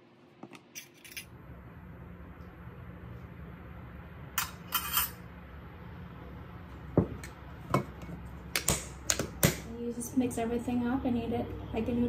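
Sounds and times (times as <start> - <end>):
metal spoon clinking glass bowl: 4.4 - 5.2.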